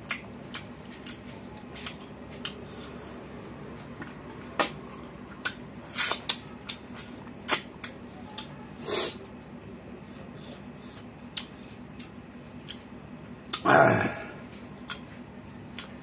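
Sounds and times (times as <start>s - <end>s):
man chewing with mouth clicks: 0.0s - 13.7s, 14.3s - 16.0s
lip smacks: 4.5s - 8.5s.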